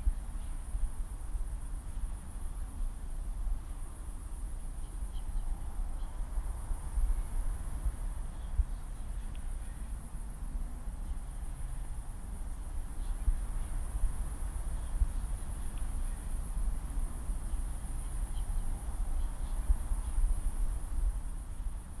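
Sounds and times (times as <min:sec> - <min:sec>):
faint ticks: 0:07.8 - 0:09.8, 0:14.8 - 0:16.4.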